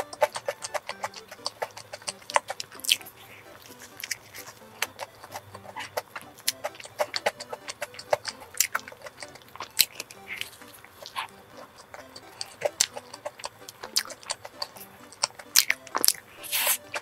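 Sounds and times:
mouth clicks and lip smacks: 0:00.0 - 0:17.0
wet chewing: 0:00.0 - 0:17.0
hissing sound: 0:16.3 - 0:17.0.

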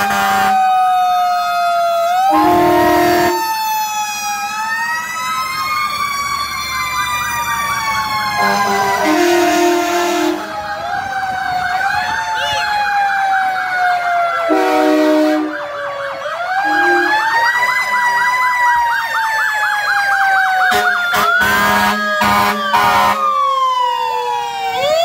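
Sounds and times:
air horn blasts: 0:00.0 - 0:00.5, 0:02.3 - 0:03.4, 0:08.4 - 0:10.5, 0:14.5 - 0:15.6, 0:16.7 - 0:17.2, 0:20.7 - 0:23.2
siren wail: 0:00.0 - 0:25.0
warbling siren yelp: 0:00.0 - 0:25.0.

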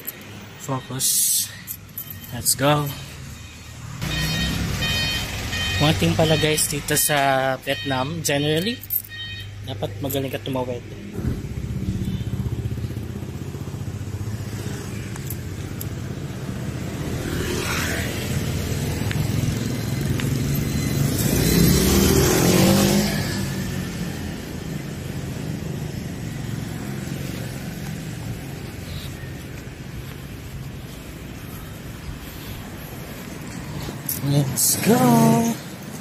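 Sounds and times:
motorbike traffic: 0:00.0 - 0:36.0
motorbike passing close: 0:03.9 - 0:06.4, 0:11.0 - 0:36.0.

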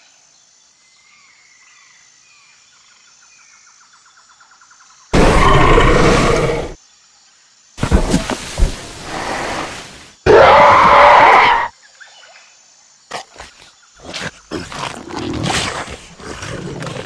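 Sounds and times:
dinosaur growl: 0:05.2 - 0:06.8
dinosaur roar: 0:05.2 - 0:06.8, 0:10.3 - 0:11.7.

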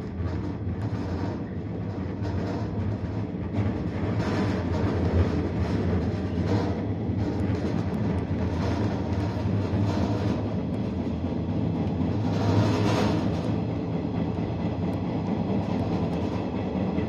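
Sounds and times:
electric train hum: 0:00.0 - 0:17.0
wheels rumbling on rails: 0:00.0 - 0:17.0.

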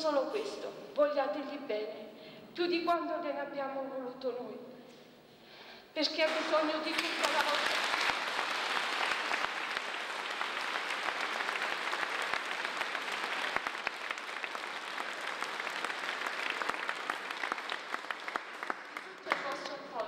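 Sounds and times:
crowd clapping: 0:06.2 - 0:20.0.

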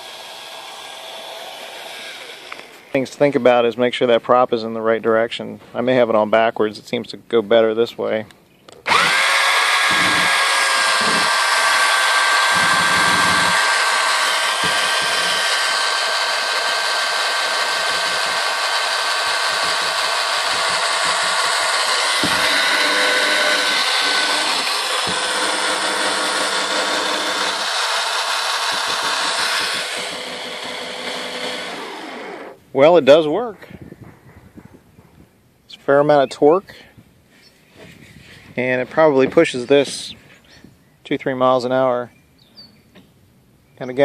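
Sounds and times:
cordless drill motor whining: 0:00.0 - 0:02.9, 0:08.8 - 0:32.6.

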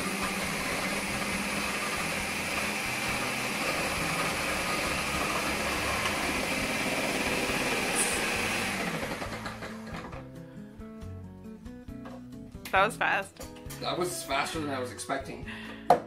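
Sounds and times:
food processor slicing cucumber: 0:00.0 - 0:10.2.

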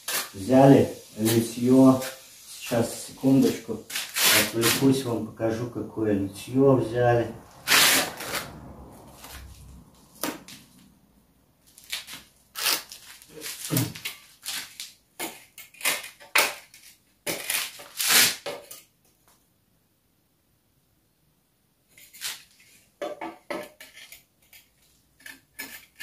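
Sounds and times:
trowel scraping mortar: 0:00.0 - 0:05.6, 0:07.6 - 0:08.5, 0:11.7 - 0:18.8, 0:23.6 - 0:26.0.

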